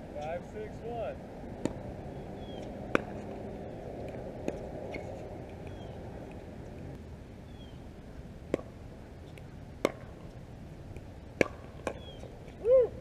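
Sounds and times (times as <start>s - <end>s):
paddles striking pickleball: 1.6s - 1.8s, 2.6s - 3.4s, 9.8s - 10.2s, 10.9s - 12.3s.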